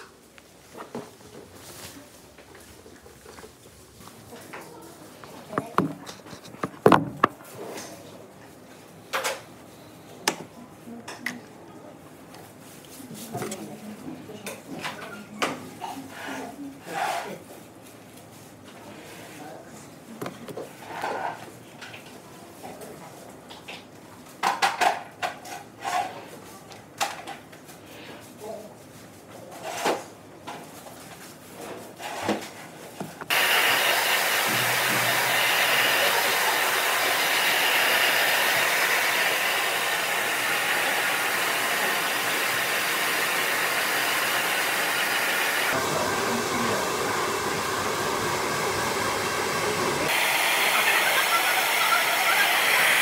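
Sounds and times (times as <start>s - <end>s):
hair dryer blowing: 33.3s - 53.0s.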